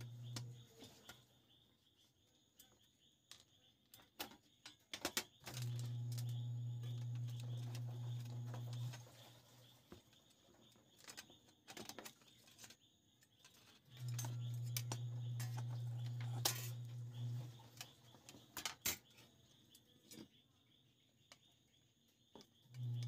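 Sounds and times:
clicks and taps of parts: 3.3 - 6.3
steady low hum: 13.9 - 18.0.

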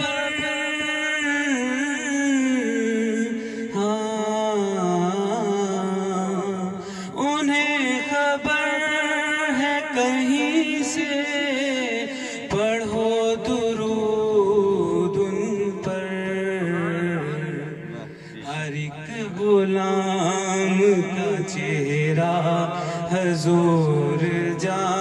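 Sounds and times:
man singing into a microphone: 0.0 - 25.0.

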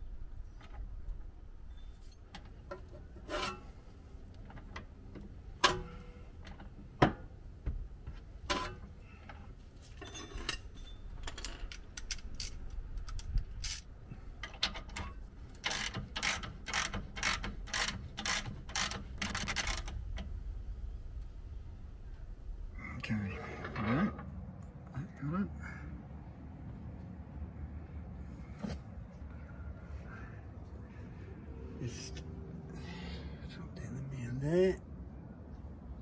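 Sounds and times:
socket ratchet clicking: 15.6 - 20.0.

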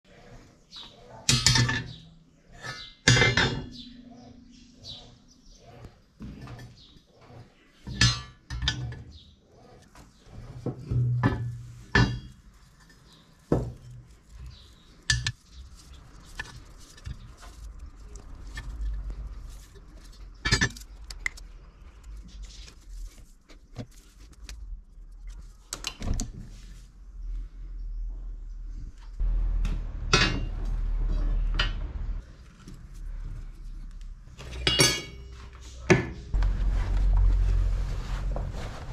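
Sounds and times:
metal coil spring clinking and knocking: 1.3 - 2.0, 7.8 - 9.2, 10.8 - 21.4, 34.4 - 35.3.

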